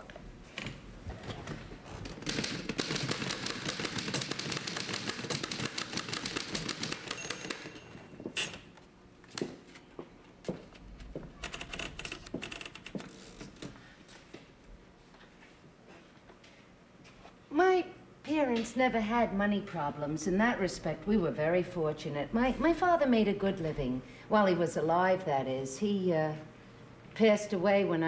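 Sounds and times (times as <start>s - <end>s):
typewriter typing: 2.1s - 7.9s.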